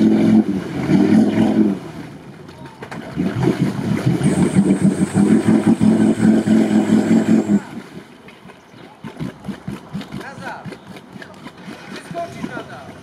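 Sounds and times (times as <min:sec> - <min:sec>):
engine revving hard: 0:00.0 - 0:02.0, 0:03.1 - 0:07.7
splashing in mud: 0:00.0 - 0:13.0.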